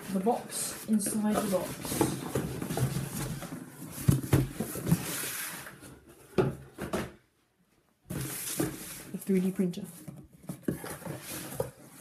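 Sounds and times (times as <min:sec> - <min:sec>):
cardboard box scraping: 0:00.2 - 0:06.3, 0:10.2 - 0:12.0.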